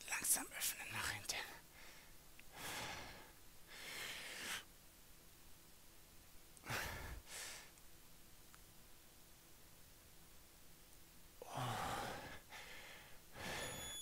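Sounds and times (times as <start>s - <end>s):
man breathing with effort: 1.6s - 4.7s, 6.6s - 7.7s, 11.4s - 14.0s.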